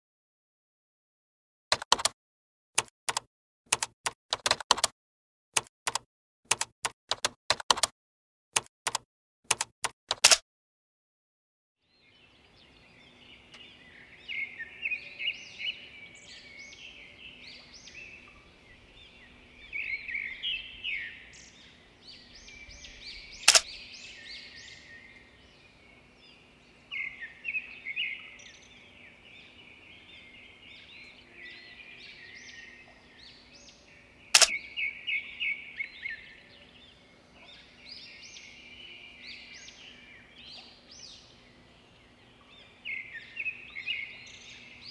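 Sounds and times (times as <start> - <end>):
sharp click: 1.7 - 2.2, 2.8 - 4.9, 5.6 - 7.9, 8.6 - 10.4, 23.4 - 23.7, 34.4 - 34.6
songbirds chirping: 11.8 - 44.9
faint steady hum: 11.9 - 44.9.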